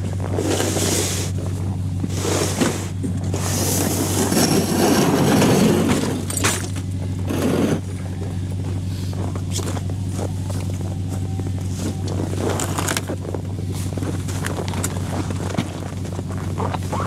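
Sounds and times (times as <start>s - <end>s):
sled scraping: 0.0s - 6.3s, 7.2s - 8.1s, 8.8s - 17.0s
vehicle engine idling: 0.0s - 17.0s
gear knocking and thumping: 7.8s - 17.0s.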